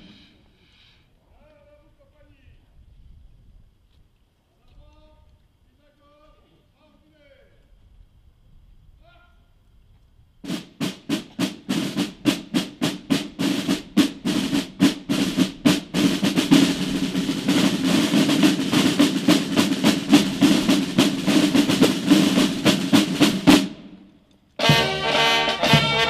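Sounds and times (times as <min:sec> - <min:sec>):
side drums rolling: 0:10.4 - 0:24.0, 0:24.6 - 0:26.0.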